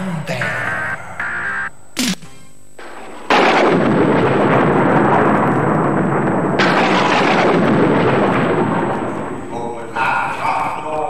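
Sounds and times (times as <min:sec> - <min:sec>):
sharp thunder crack: 0:02.8 - 0:10.0
thunder rumbling: 0:02.8 - 0:10.9.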